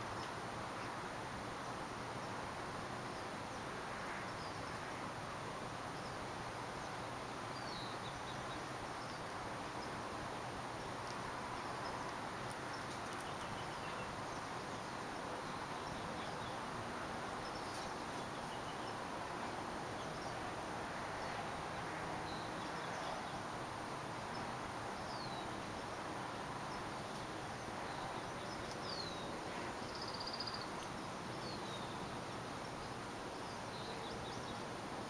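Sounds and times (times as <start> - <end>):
steady hiss: 0.0 - 35.0
faint bird chirps: 27.8 - 32.2.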